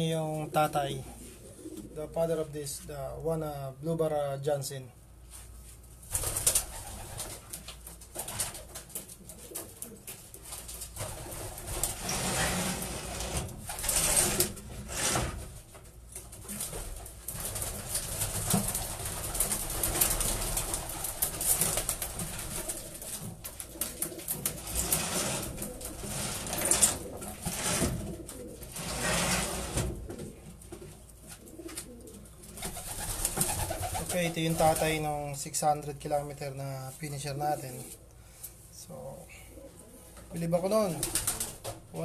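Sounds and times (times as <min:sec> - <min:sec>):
pigeons cooing: 0:00.9 - 0:02.3, 0:17.7 - 0:34.8, 0:39.3 - 0:40.2
wings flapping: 0:06.1 - 0:14.6, 0:16.4 - 0:30.3, 0:31.6 - 0:35.0, 0:40.8 - 0:41.8.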